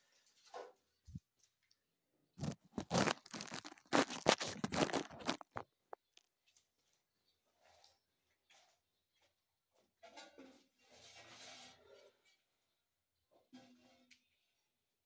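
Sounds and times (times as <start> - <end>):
phone microphone rustling: 2.4 - 6.2.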